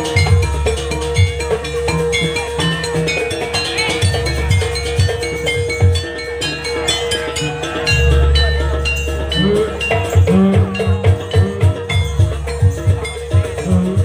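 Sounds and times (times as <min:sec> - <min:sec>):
drum strokes: 0:00.0 - 0:14.0
struck metal gamelan notes: 0:00.0 - 0:14.0
deep low drum stroke: 0:07.8 - 0:14.0.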